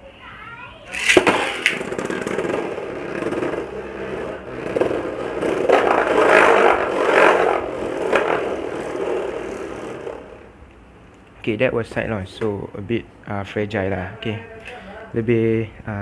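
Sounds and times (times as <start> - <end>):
spinning top whirring and scraping: 0.9 - 10.5.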